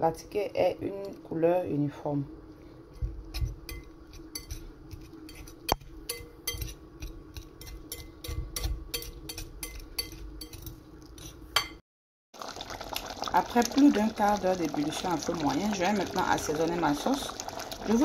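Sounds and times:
whisk clinking against glass bowl: 6.1s - 6.8s, 7.6s - 10.7s.

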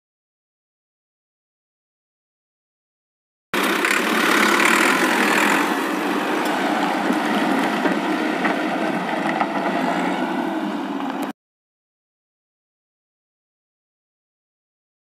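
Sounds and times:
excavator engine running: 3.6s - 11.3s.

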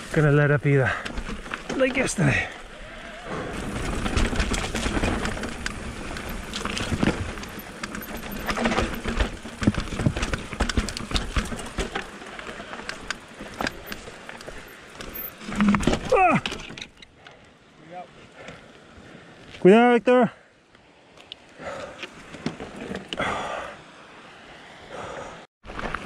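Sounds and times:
tyres crunching on loose ground: 0.0s - 16.9s
bike rattling and knocking: 0.8s - 2.5s, 3.6s - 17.0s.

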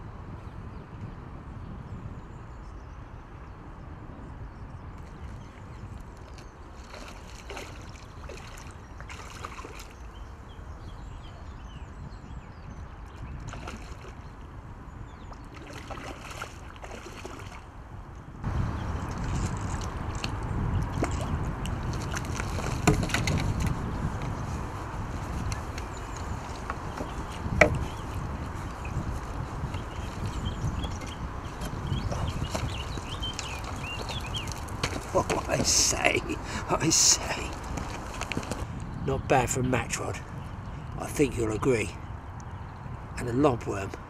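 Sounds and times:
fish splashing in water: 6.7s - 10.0s, 13.5s - 14.2s, 15.4s - 17.7s.

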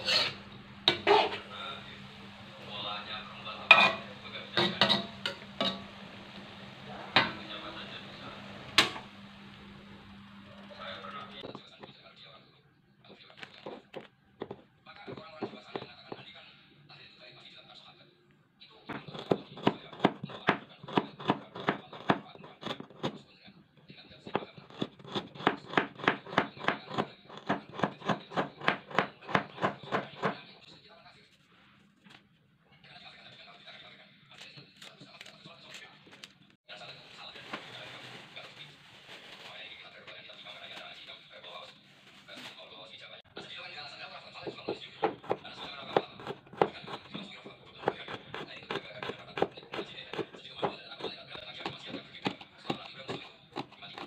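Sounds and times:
knife chopping on wooden board: 24.3s - 30.4s, 44.4s - 54.0s.

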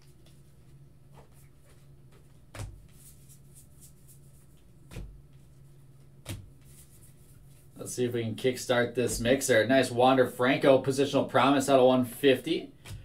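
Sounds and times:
trading cards rustling and flicking: 0.0s - 7.8s.

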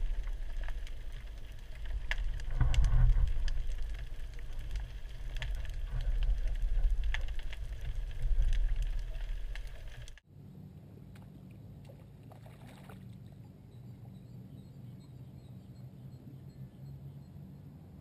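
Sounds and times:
sharp clicks and crackles: 0.0s - 10.2s
underwater rumble of moving water: 0.0s - 10.2s.

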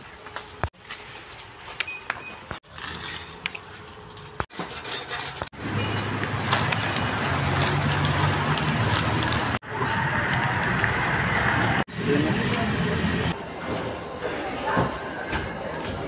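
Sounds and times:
background din with low hum: 0.0s - 7.8s, 12.0s - 16.0s.

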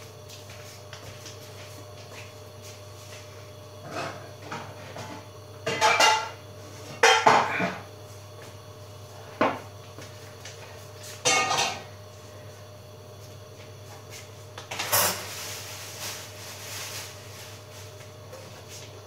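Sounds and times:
dishes and cutlery clattering: 5.7s - 6.3s, 11.2s - 11.8s.

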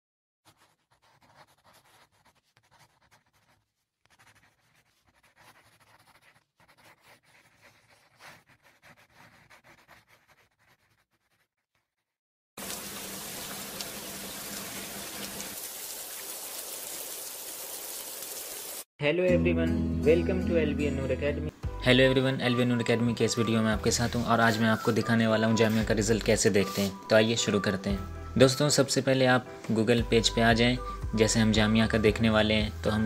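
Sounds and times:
marker pen scratching on paper: 0.5s - 12.2s.

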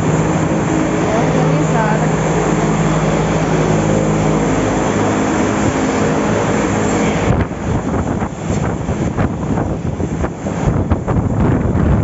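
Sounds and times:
milking machinery droning: 0.0s - 7.7s.

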